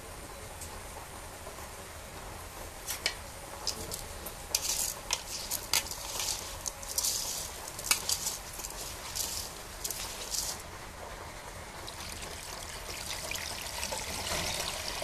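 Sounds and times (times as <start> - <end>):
grains clicking against metal: 2.9 - 10.7
hand mixing rice in a pot: 3.6 - 10.9, 11.7 - 15.0.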